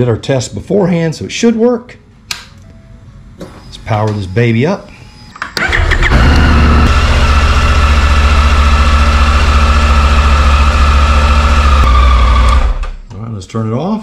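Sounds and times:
motorcycle engine idling: 5.6s - 12.7s.

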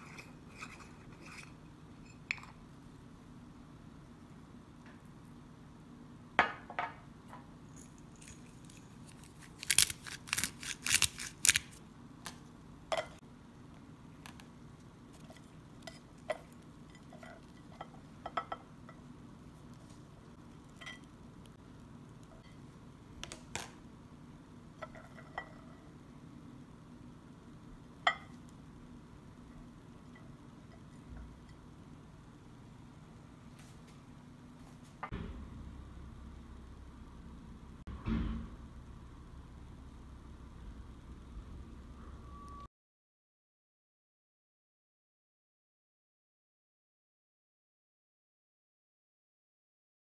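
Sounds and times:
low steady hum: 0.0s - 42.7s
spice container crunching: 7.8s - 11.8s.

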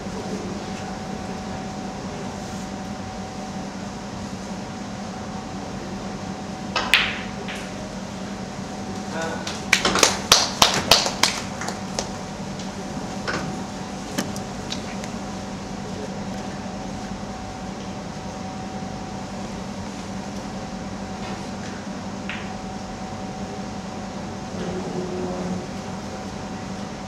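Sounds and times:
ventilation hum: 0.0s - 27.0s.

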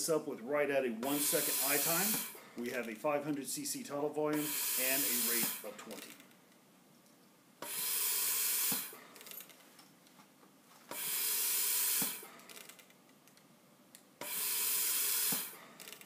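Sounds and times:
ventilator gas hissing: 1.0s - 2.7s, 4.3s - 6.0s, 7.6s - 9.1s, 10.9s - 12.4s, 14.2s - 15.8s.

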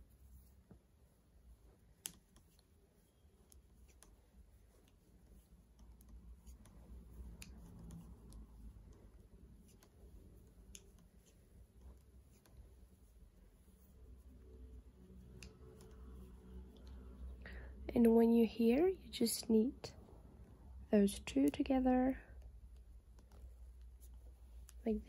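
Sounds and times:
knitting needles clicking: 1.6s - 17.5s, 21.1s - 25.0s.

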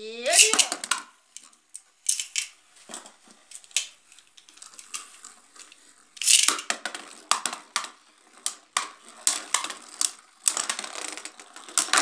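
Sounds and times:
spinning tops clacking: 0.2s - 2.6s, 3.5s - 12.0s.

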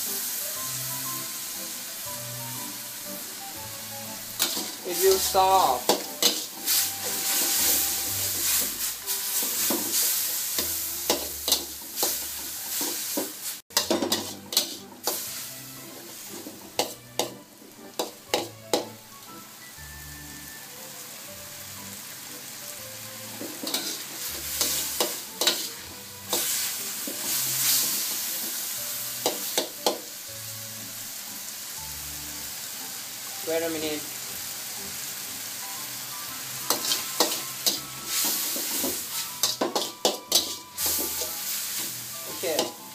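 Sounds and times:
noodles sizzling in a wok: 0.0s - 42.9s
metal spatula scraping a pan: 4.3s - 18.9s, 23.4s - 28.6s, 36.6s - 42.9s.

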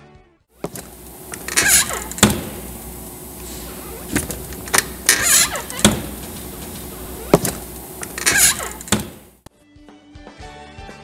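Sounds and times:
door gasket squeaking: 0.6s - 9.4s
low hum: 0.6s - 9.4s
refrigerator door clicks: 0.7s - 9.4s.

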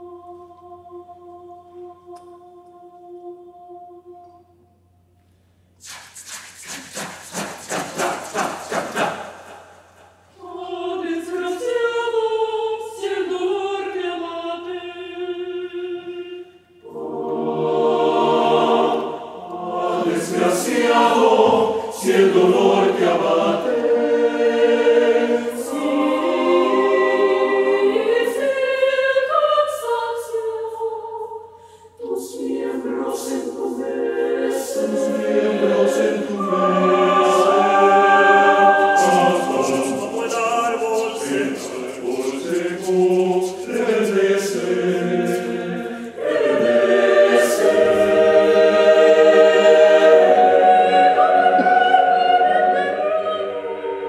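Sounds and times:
mixed choir singing unaccompanied: 0.0s - 4.6s, 7.2s - 54.0s
rapid sharp sounds: 5.8s - 10.2s, 37.3s - 46.6s.

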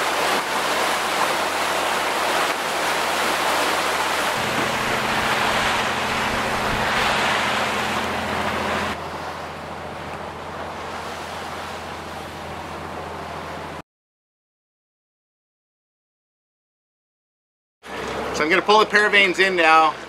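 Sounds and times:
water rushing along boat hull: 0.0s - 13.8s, 17.8s - 20.0s
wind: 0.0s - 13.8s, 17.8s - 20.0s
diesel engine hum: 3.2s - 13.8s, 17.8s - 20.0s.

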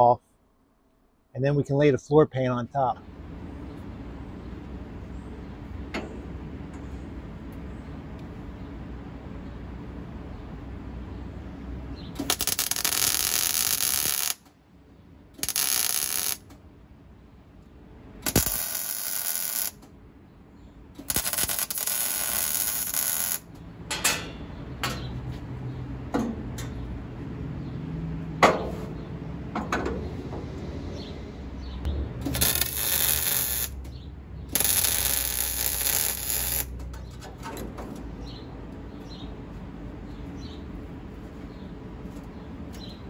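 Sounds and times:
welder hissing: 12.2s - 14.4s, 15.4s - 16.4s, 18.3s - 19.8s, 21.0s - 23.4s, 32.3s - 33.8s, 34.5s - 36.7s.

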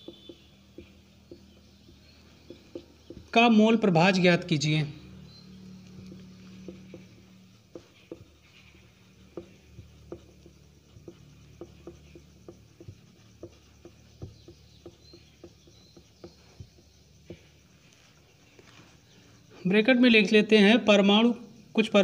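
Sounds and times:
marker writing on a whiteboard: 0.0s - 3.6s, 5.1s - 19.0s.

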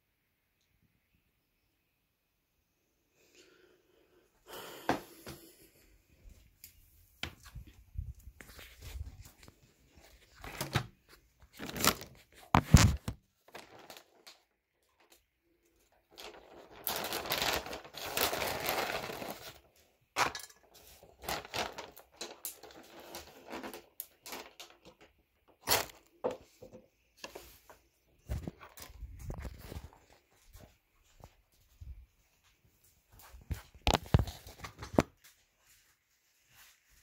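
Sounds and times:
rustling: 15.8s - 24.8s.

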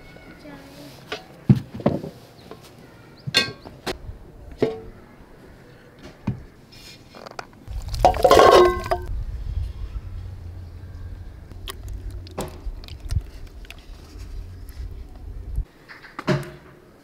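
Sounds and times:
metal pot and glass lid clinking: 8.0s - 9.1s
pot lid clattering: 8.0s - 9.1s.

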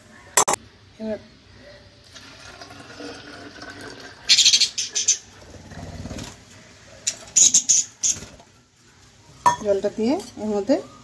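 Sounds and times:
water pouring into plastic bottle: 2.1s - 4.3s.

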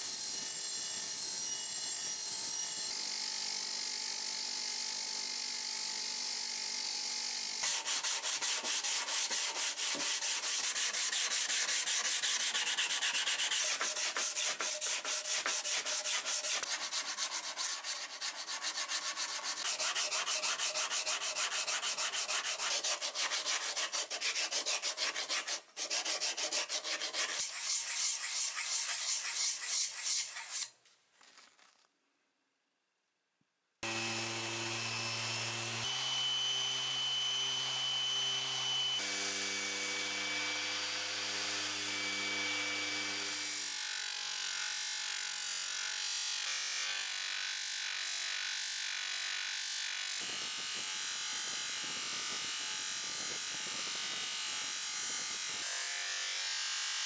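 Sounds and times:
bench grinder sharpening axe blade: 7.6s - 30.7s
sanding block rubbing steel: 7.6s - 30.7s.

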